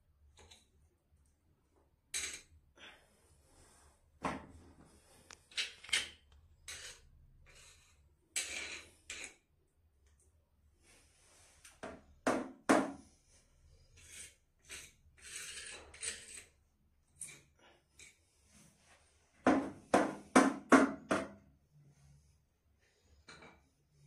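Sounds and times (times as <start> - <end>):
screwdriver scraping: 14.0 - 16.5.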